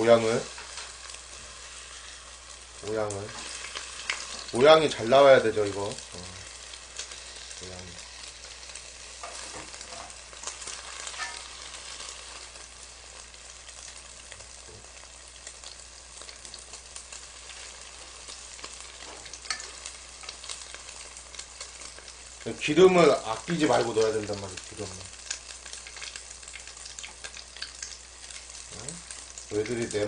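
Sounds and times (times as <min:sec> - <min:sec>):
fish frying in oil: 0:00.0 - 0:30.0.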